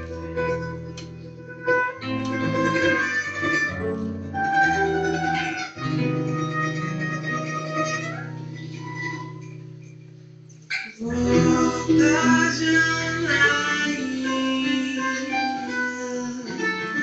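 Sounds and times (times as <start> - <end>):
plucked mandolin melody: 0.0 - 17.0
double bass held notes: 11.0 - 17.0.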